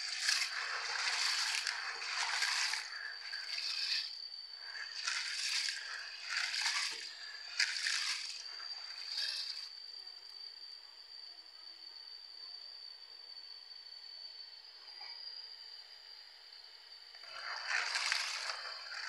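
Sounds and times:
hand rubbing beans in water: 0.0 - 9.7, 17.2 - 19.0.

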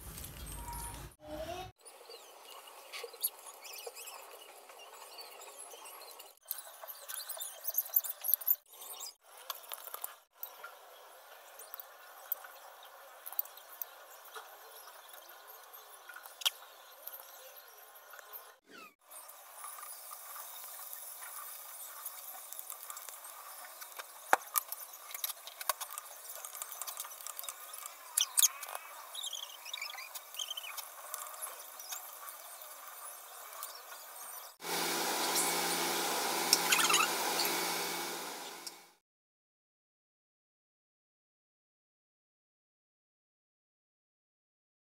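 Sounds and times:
food deep-frying in oil: 19.1 - 38.9
oil popping and crackling: 19.7 - 28.8
loud steady hiss: 34.6 - 38.9
short high squeaks: 35.3 - 37.8.

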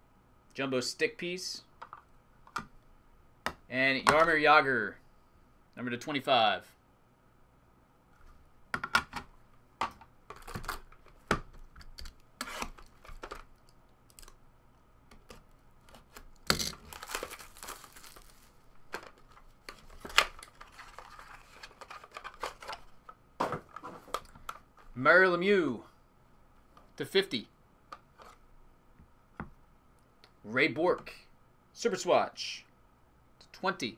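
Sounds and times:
plastic wrapper crinkling and tearing: 15.8 - 22.9.

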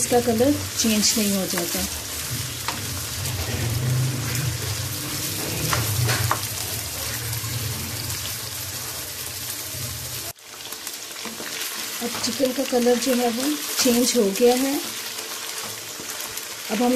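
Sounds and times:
chicken sizzling in hot oil: 0.0 - 16.9
low hum: 1.9 - 10.3.

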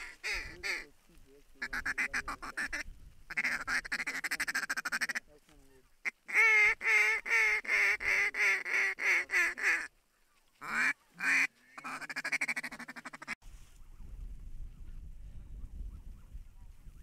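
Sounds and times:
wind noise: 0.0 - 4.1, 13.4 - 17.0
goose calls honking: 1.6 - 5.3.

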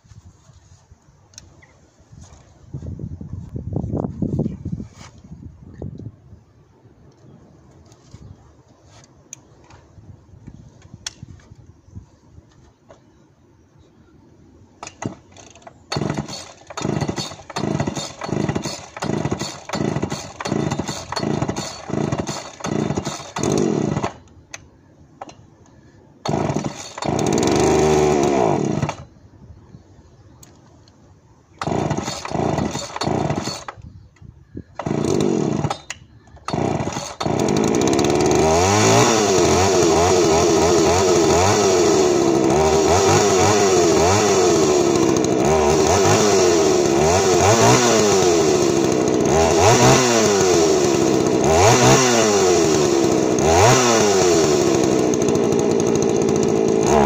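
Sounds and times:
chainsaw being pull-started: 14.8 - 24.3, 26.2 - 29.1, 31.6 - 33.9, 34.8 - 57.0
chainsaw engine revving: 14.8 - 24.3, 26.2 - 29.1, 31.6 - 33.8, 34.8 - 57.0.

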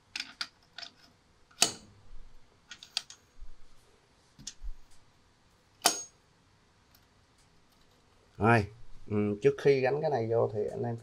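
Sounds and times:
sharp metal clacks: 5.8 - 6.2.

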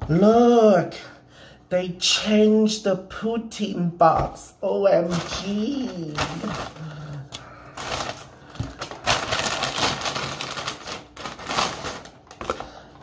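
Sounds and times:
paper bag rustling: 5.0 - 12.9.

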